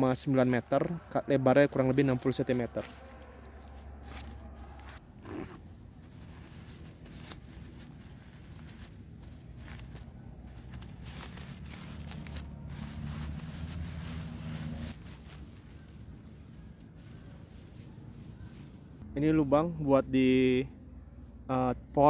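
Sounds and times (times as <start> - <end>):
tarp crinkling and rustling: 2.0 - 18.8.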